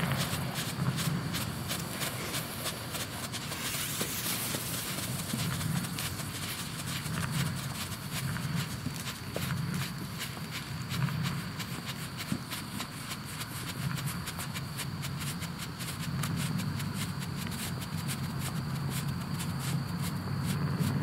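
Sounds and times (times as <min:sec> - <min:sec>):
firework crackling: 0:00.0 - 0:07.8
steady low rumble: 0:00.0 - 0:21.0.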